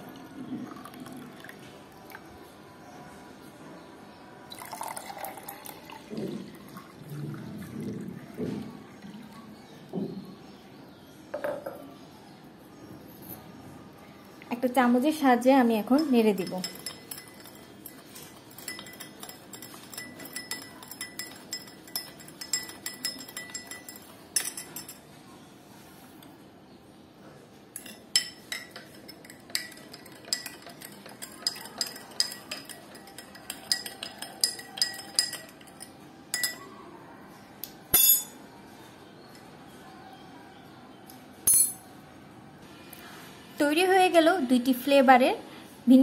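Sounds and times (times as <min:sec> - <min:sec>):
spoon clinking in glass: 0:16.0 - 0:25.0, 0:27.8 - 0:36.7, 0:37.9 - 0:38.4, 0:41.5 - 0:41.9.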